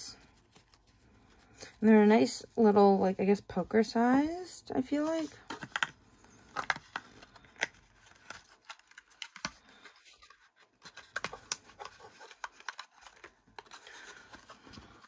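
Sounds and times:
cards scraping against cardboard: 0:04.9 - 0:15.0.

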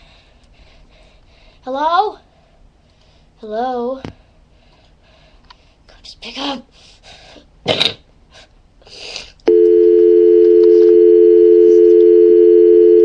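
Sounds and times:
telephone dial tone: 0:09.5 - 0:13.0.

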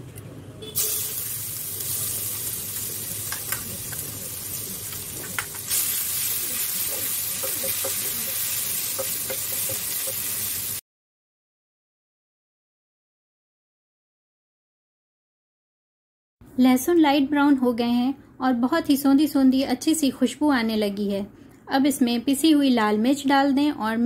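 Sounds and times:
garlic sizzling in oil: 0:00.8 - 0:10.8.

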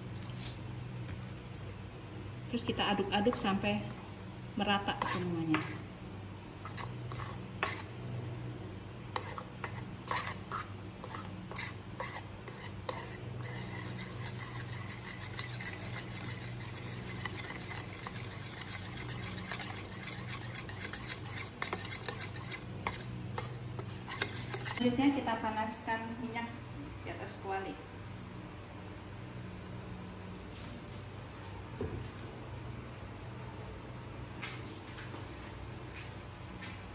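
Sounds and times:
low steady hum: 0:00.0 - 0:36.9
spoon scraping and swishing: 0:04.9 - 0:05.9, 0:06.6 - 0:08.4, 0:09.1 - 0:24.9.

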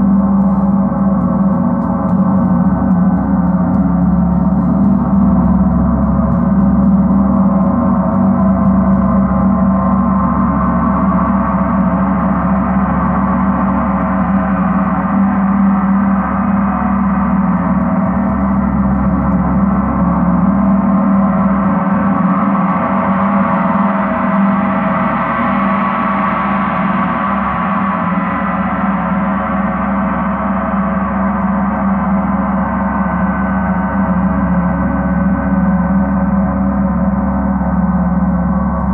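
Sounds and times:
gong played with soft mallets: 0:00.0 - 0:38.9.

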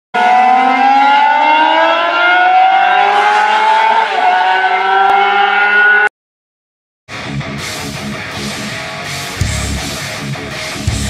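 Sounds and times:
engine accelerating: 0:00.2 - 0:06.1.

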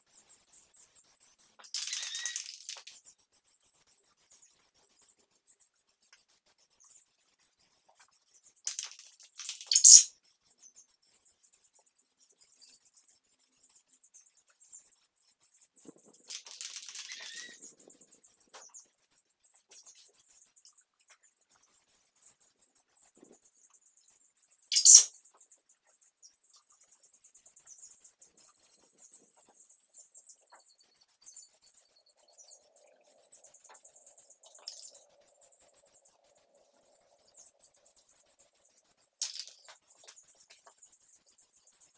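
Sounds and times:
spray paint can hissing: 0:08.7 - 0:10.1, 0:24.7 - 0:25.1.

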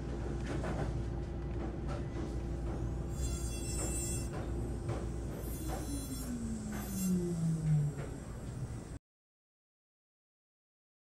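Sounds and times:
low tone sliding downward: 0:05.6 - 0:09.0.

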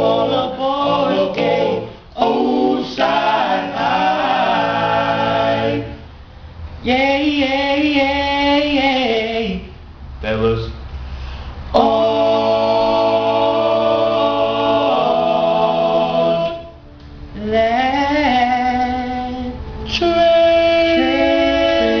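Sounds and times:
male quartet singing a cappella: 0:00.0 - 0:06.1, 0:06.8 - 0:10.6, 0:11.6 - 0:22.0.

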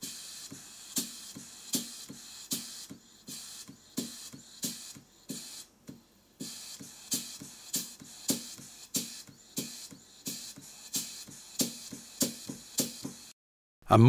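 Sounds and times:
hissing exhaust puffs: 0:00.0 - 0:13.3
model steam engine knocking: 0:06.4 - 0:13.3.

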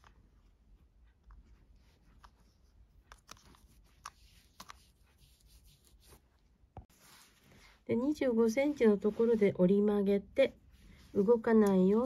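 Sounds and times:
faint taps and rustles of handling cord: 0:00.0 - 0:07.8.

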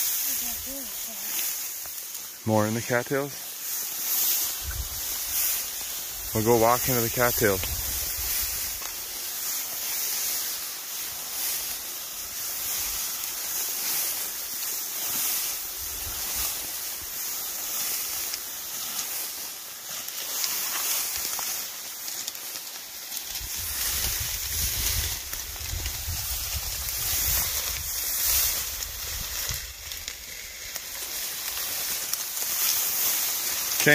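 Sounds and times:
dry stalks rustling against clothing: 0:00.0 - 0:33.9
wind rumbling on microphone: 0:04.6 - 0:05.4, 0:07.4 - 0:08.8, 0:23.3 - 0:30.1.

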